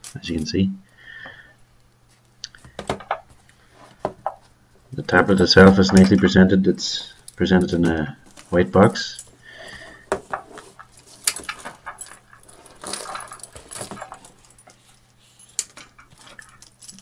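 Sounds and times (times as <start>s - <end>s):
keys jingling: 6.8s - 17.0s.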